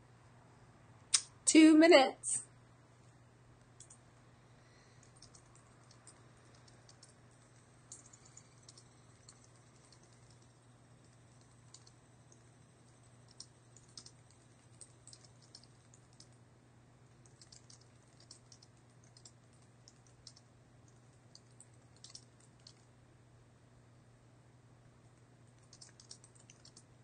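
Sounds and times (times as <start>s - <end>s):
typing on computer keyboard: 3.8s - 4.0s, 5.0s - 16.4s, 17.2s - 22.9s, 25.6s - 26.9s.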